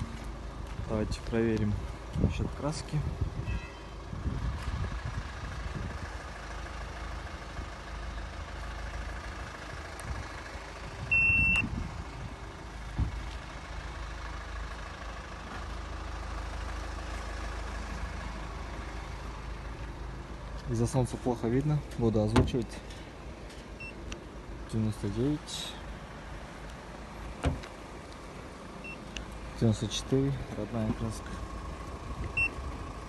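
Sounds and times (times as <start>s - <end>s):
low outdoor rumble: 0.0s - 33.0s
high electronic beep: 11.1s - 11.6s.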